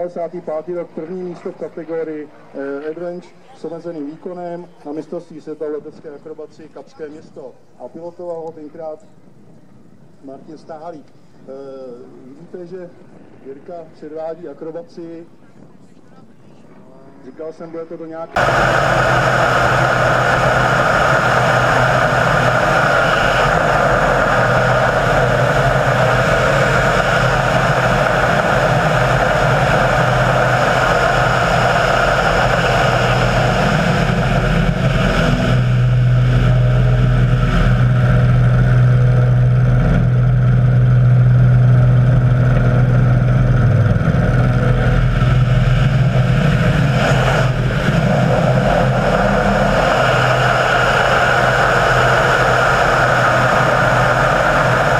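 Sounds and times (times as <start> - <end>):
low hum: 18.4 - 54.9
model aircraft engine running: 18.4 - 54.9.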